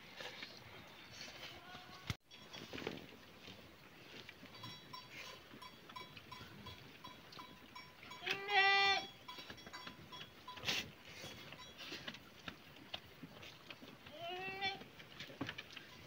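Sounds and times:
faint tinkling tones: 0:04.4 - 0:12.1
sheep bleating: 0:08.2 - 0:09.1, 0:14.1 - 0:14.8.

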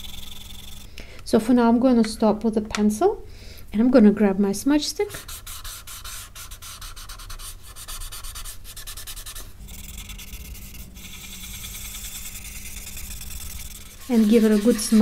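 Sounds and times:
blending stick rubbing on paper: 0:00.0 - 0:00.9, 0:05.1 - 0:15.0.

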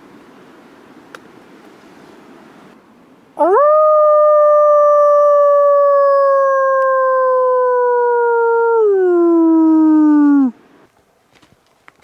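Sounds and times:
man howling like a wolf: 0:03.4 - 0:10.6.

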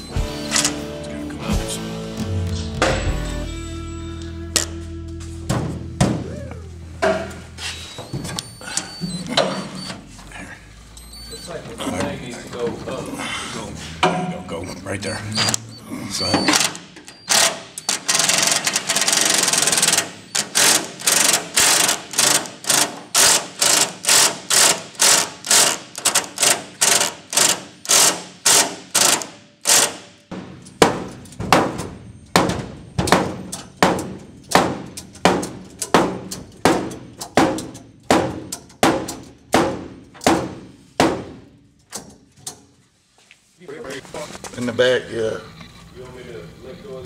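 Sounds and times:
impact driver driving screw: 0:16.6 - 0:30.1.

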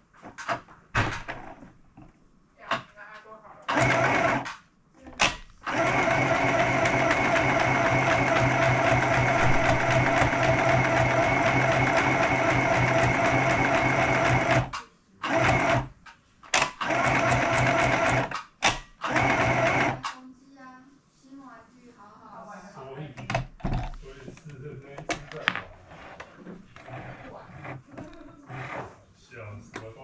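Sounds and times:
electric sewing machine stitching: 0:03.7 - 0:04.6, 0:05.2 - 0:20.1.

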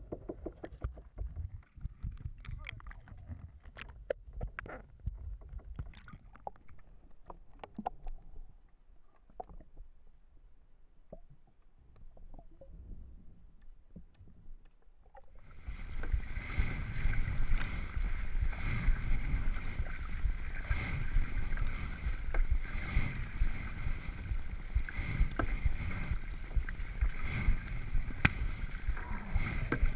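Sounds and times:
paddle blades splashing: 0:15.4 - 0:29.9
water rushing along hull: 0:15.4 - 0:29.9.

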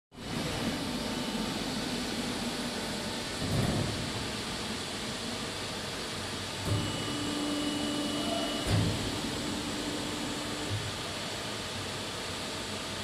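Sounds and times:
press machine drone: 0:00.2 - 0:11.5
machine knocks: 0:08.6 - 0:09.2.

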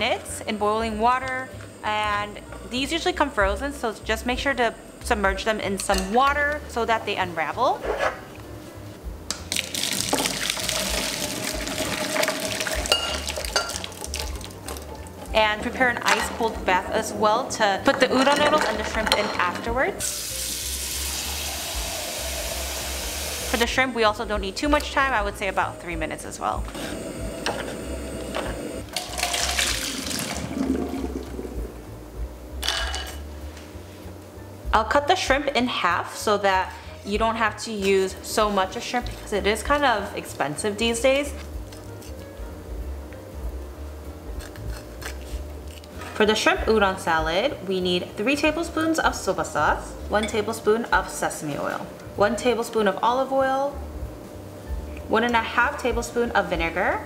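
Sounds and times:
water gushing into colander: 0:09.6 - 0:14.6, 0:20.1 - 0:23.6, 0:29.0 - 0:31.6.

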